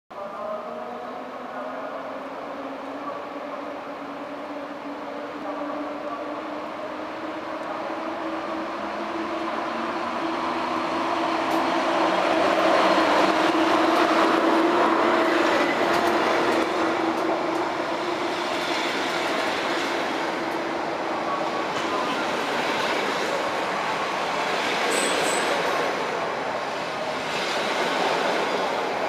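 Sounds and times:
train rolling rumble: 6.2 - 29.0.

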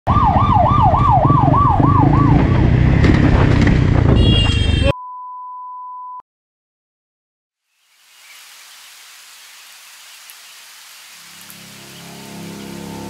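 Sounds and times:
siren wailing: 0.1 - 2.8
motorcycle rumble: 0.1 - 4.9
wind: 0.2 - 4.9, 7.6 - 13.0.

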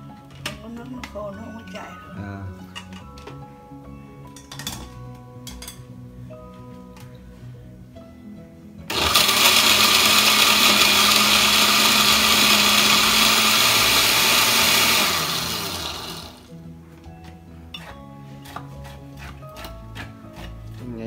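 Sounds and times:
blender grinding: 8.9 - 16.5.

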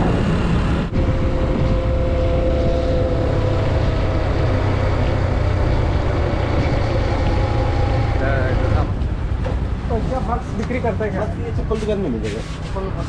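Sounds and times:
wind rushing: 0.0 - 9.8
motorcycle engine cruising: 0.0 - 11.6.

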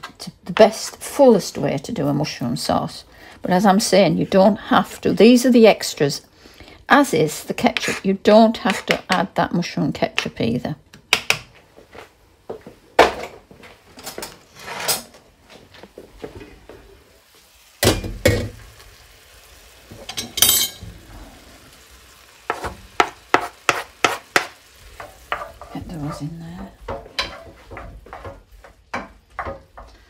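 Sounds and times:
faint sizzle: 13.7 - 30.0
utensil knocking against pan: 22.5 - 29.9.

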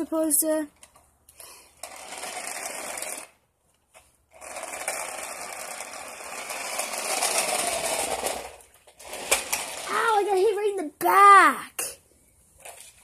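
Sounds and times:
toy car motor whirring: 0.8 - 10.6.

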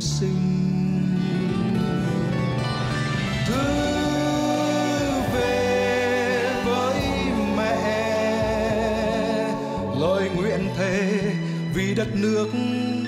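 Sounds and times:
man singing a slow ballad: 0.0 - 2.4, 3.4 - 13.0
instrumental accompaniment: 0.3 - 13.0.

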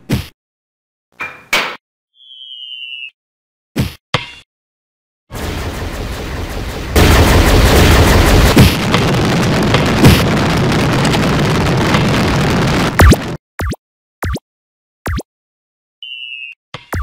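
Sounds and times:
explosion booms: 5.4 - 13.4.

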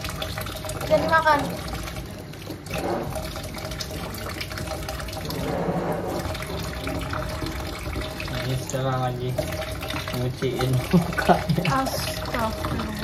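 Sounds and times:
tap water running and splashing: 0.0 - 13.0.

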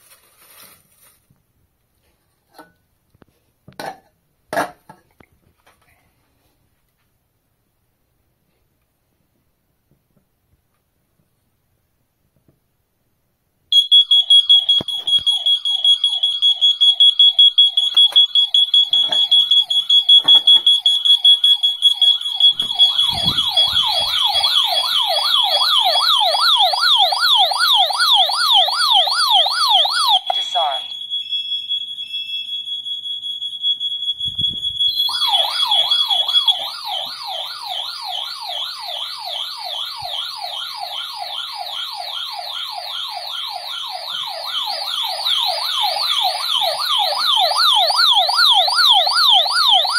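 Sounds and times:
smoke alarm high piercing tone: 13.7 - 49.9
alarm siren rising and falling: 13.8 - 49.9.

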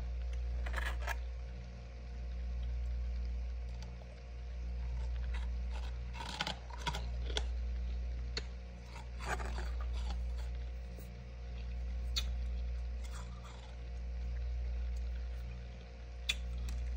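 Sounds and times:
steady low hum: 0.0 - 16.9
frost crunching and scraping: 0.6 - 1.2, 4.7 - 16.9.

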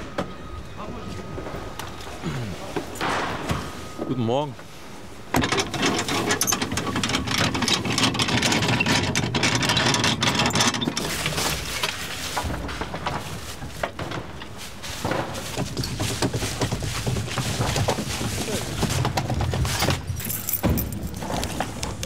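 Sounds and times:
metallic clattering and rattling: 5.3 - 22.0.

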